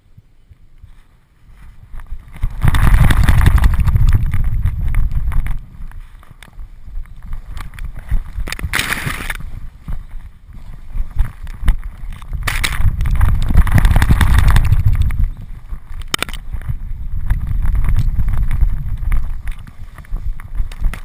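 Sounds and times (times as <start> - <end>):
rustling of tall grass: 0.0 - 21.0
wind on microphone: 0.0 - 21.0.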